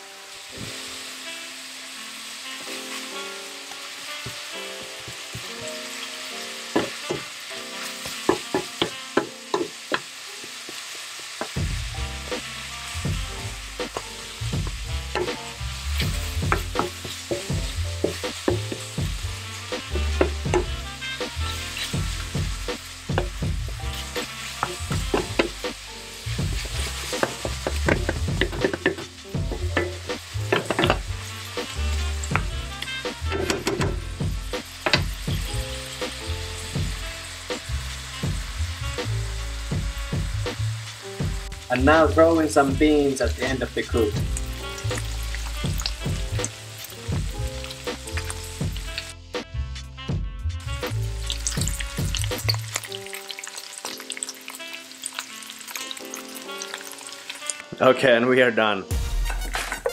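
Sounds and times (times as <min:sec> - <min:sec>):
meat sizzling in a pan: 0:00.0 - 0:49.5, 0:50.6 - 0:57.8
wooden spatula scraping a pan: 0:02.5 - 0:10.8, 0:12.4 - 0:36.7, 0:59.2 - 0:59.9.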